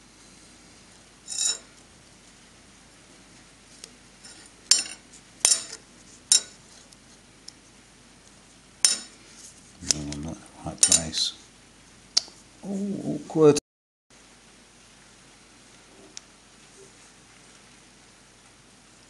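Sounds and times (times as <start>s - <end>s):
metal pieces clinking on steel bench: 1.3s - 1.7s, 4.2s - 6.6s, 8.8s - 9.2s, 10.8s - 11.2s.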